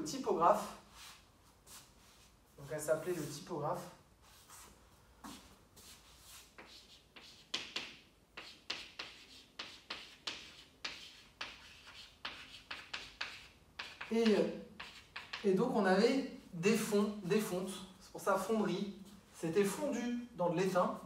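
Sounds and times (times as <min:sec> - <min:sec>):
chalk tapping and scraping: 0:04.2 - 0:15.6.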